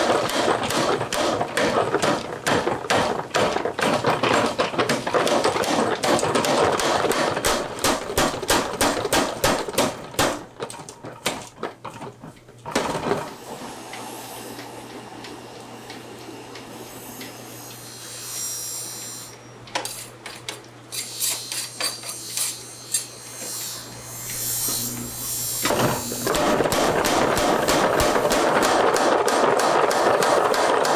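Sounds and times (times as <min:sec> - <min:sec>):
power hammer pounding steel: 0:00.0 - 0:10.6, 0:24.0 - 0:30.9
forge fire humming: 0:23.8 - 0:28.9.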